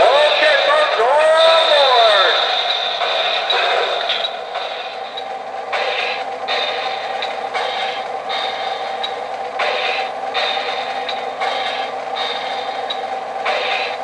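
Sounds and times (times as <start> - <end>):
model train rolling clatter: 0.0 - 14.0.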